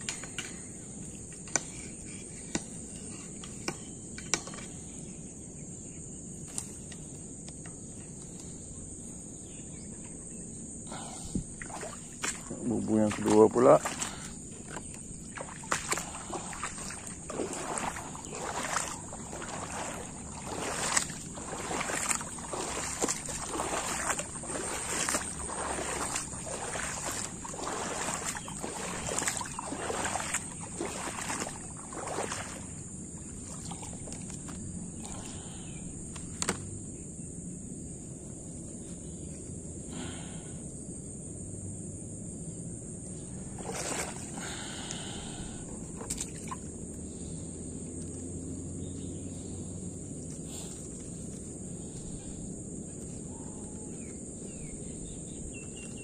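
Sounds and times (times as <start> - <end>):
boots wading through water: 11.0 - 35.5, 43.5 - 46.8.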